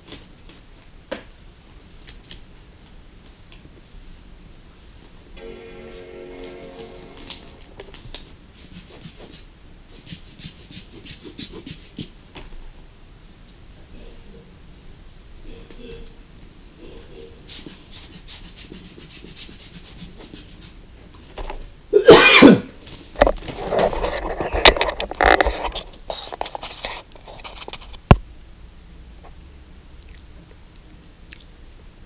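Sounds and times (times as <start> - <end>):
man coughing: 22.0 - 22.8.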